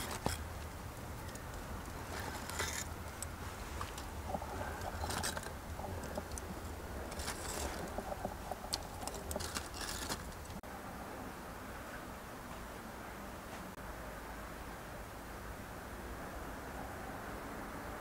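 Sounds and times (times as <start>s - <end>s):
wood fire crackling: 0.0s - 10.6s
charcoal clattering: 1.2s - 10.6s.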